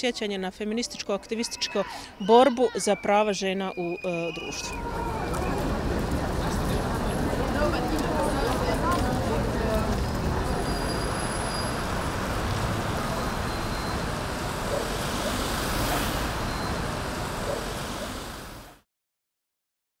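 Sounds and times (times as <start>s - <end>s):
faint voices: 0.7s - 13.6s
marching crowd din: 0.9s - 18.3s.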